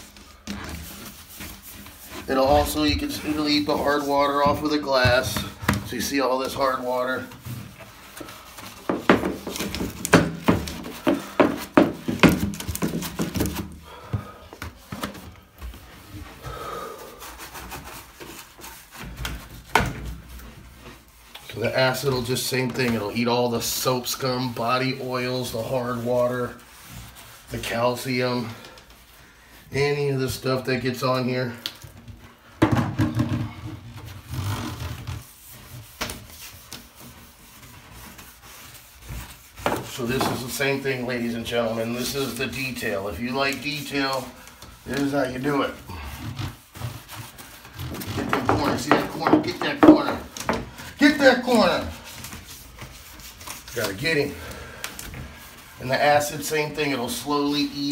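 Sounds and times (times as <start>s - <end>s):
scrub pad rubbing on wet glass: 0.0s - 12.1s, 20.2s - 31.4s, 34.1s - 54.4s.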